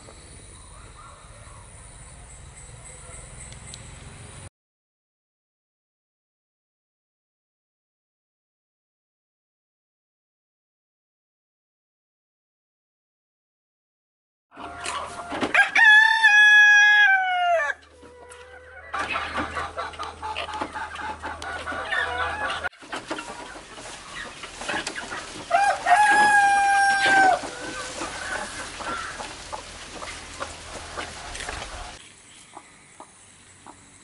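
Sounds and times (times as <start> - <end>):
chickens clucking: 14.5 - 16.0, 17.3 - 34.0
rooster crowing: 14.6 - 19.0, 25.5 - 29.3.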